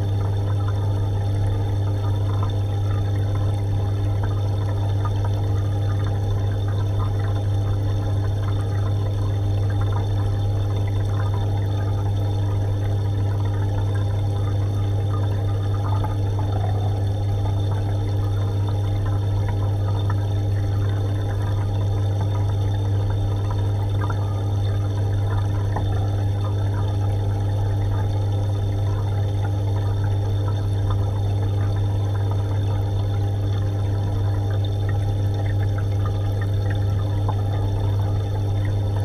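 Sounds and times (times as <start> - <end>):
aquarium pump humming: 0.0 - 39.0
water trickling and bubbling: 0.0 - 39.0.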